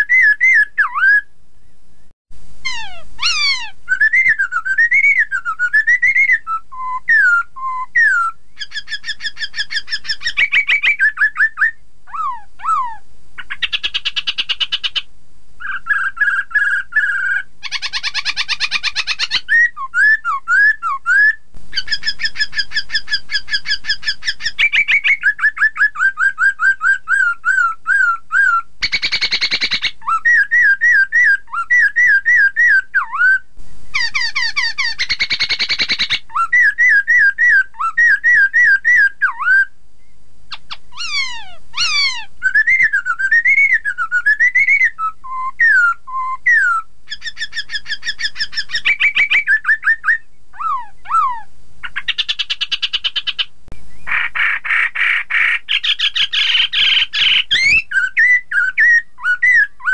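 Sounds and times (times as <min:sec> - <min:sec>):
bird whistled song: 0:00.0 - 0:01.8, 0:02.7 - 0:59.9
bird harsh rasping calls: 0:02.6 - 0:05.3, 0:08.0 - 0:19.7, 0:21.7 - 0:25.3, 0:28.4 - 0:32.7, 0:33.9 - 0:39.1, 0:40.5 - 0:43.9, 0:46.5 - 0:59.9.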